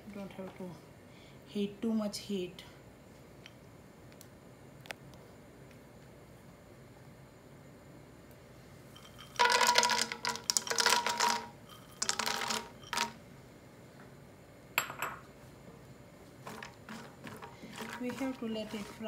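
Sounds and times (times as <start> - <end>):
almonds clattering into a pan: 9.0 - 13.2, 16.4 - 19.0.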